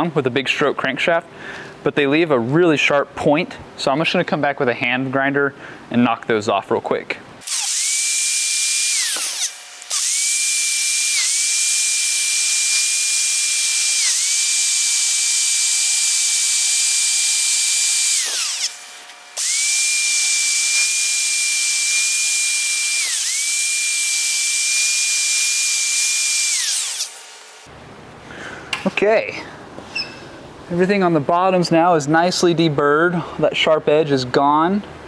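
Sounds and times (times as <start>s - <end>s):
hand grinder grinding metal: 7.5s - 27.2s.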